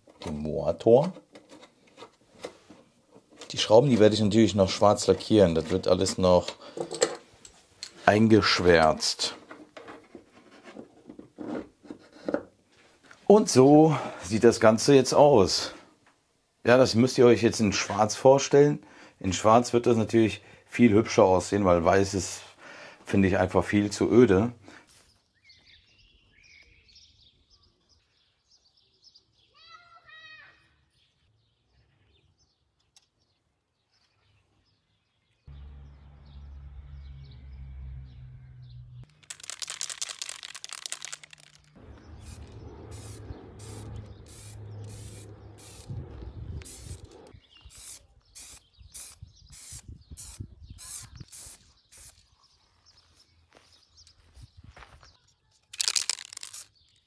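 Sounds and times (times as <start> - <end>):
bird chirping: 25.0 - 57.0
spray paint can hissing: 39.1 - 52.2, 55.8 - 56.8.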